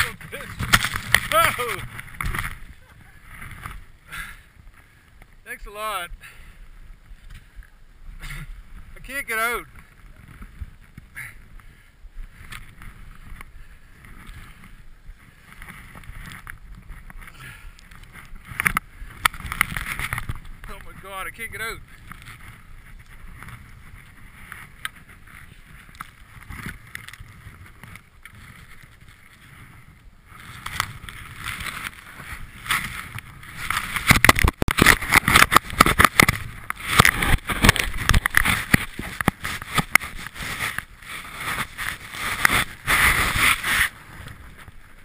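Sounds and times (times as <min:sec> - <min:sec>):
snow scraping against camera: 0:00.0 - 0:03.9, 0:19.4 - 0:45.0.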